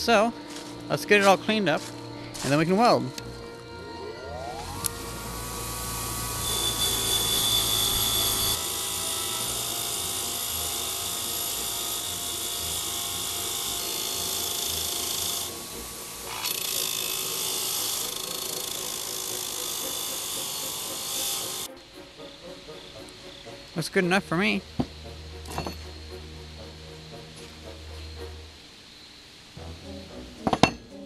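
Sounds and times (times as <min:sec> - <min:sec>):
bench grinder motor whine: 0:01.9 - 0:21.7
wire wheel scratching metal: 0:04.9 - 0:21.7.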